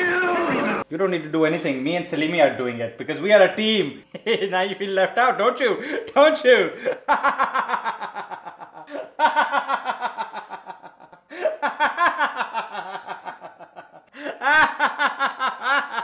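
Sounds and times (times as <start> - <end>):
man laughing hard: 6.7 - 16.0.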